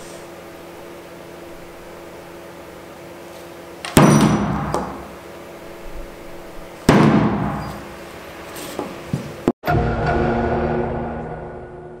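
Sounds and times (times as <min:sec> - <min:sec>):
axe chops with ringing thud: 0:03.9 - 0:04.9.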